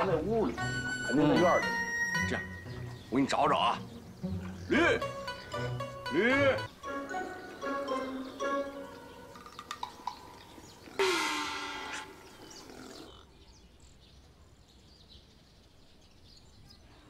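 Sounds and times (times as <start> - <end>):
donkey braying: 0.0 - 13.3.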